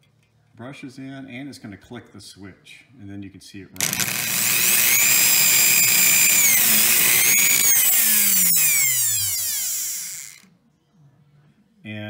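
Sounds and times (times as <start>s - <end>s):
high-speed motor whine: 3.8s - 10.4s.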